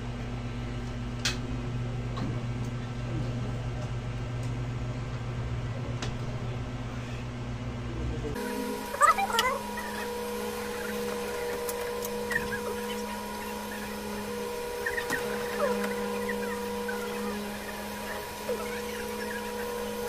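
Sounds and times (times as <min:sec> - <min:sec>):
steady hum: 0:00.0 - 0:20.0
chicken-like calls: 0:08.9 - 0:20.0.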